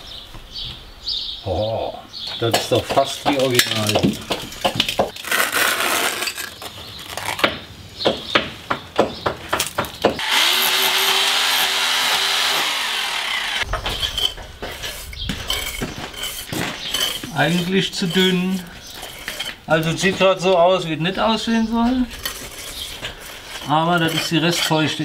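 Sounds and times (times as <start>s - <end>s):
power chisel chipping: 9.6s - 20.1s
trowel scraping and tapping stone: 13.8s - 20.6s, 22.1s - 25.0s.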